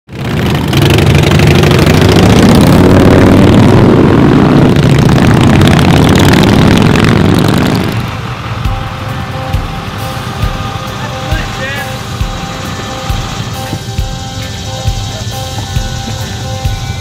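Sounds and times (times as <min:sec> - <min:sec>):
loud vehicle engine running: 0:00.1 - 0:17.0.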